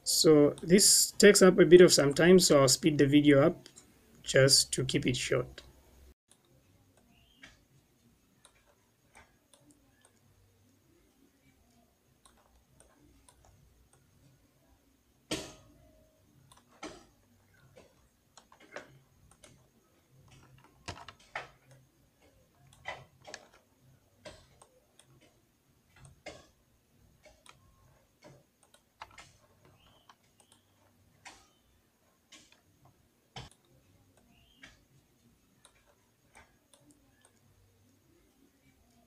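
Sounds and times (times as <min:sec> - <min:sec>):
keyboard and mouse clicking: 0:12.2 - 0:14.0, 0:20.2 - 0:25.4, 0:27.2 - 0:31.7, 0:35.6 - 0:37.4.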